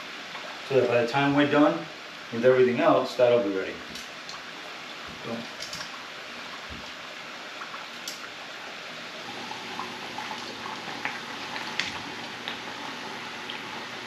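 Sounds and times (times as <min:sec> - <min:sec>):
chicken deep-frying in oil: 0:03.4 - 0:14.0.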